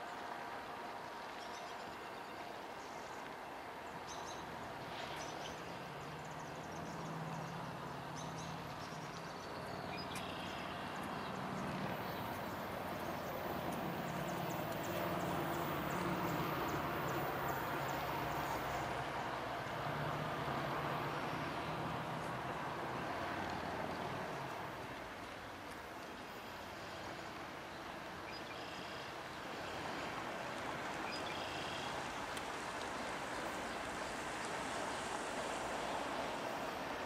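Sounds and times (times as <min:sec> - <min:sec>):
diesel locomotive engine drone: 0:08.9 - 0:25.3.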